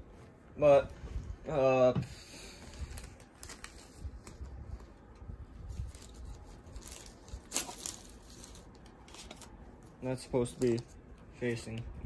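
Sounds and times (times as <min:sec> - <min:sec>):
cards rustling and tapping: 0:05.9 - 0:11.9.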